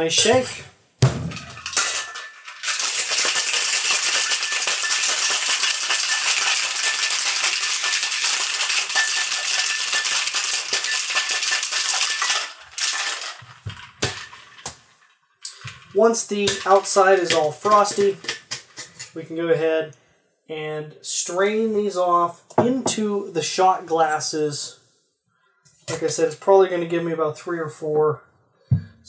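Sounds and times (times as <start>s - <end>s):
metal tins knocking: 0.0s - 8.1s
ice rattling in metal shaker: 1.4s - 19.1s.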